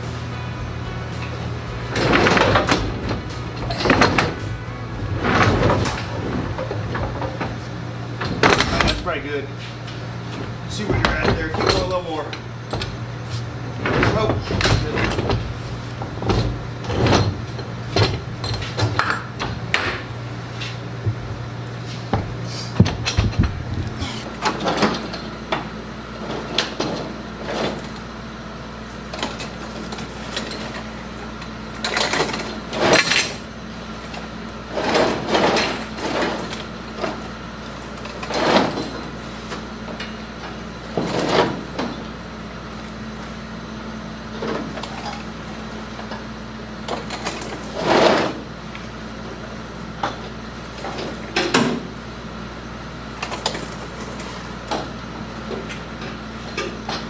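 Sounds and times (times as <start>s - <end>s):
steady low hum: 0.0s - 57.0s
chain clanking and rattling: 1.2s - 7.6s, 13.8s - 20.1s, 38.0s - 39.2s.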